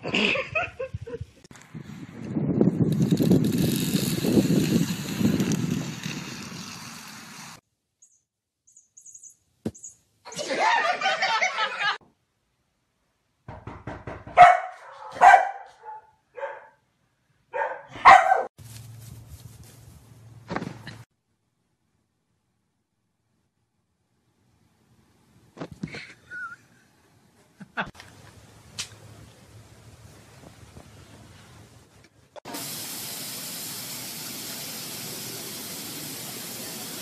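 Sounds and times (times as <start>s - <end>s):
dog barking: 14.4s - 16.8s, 17.5s - 18.5s.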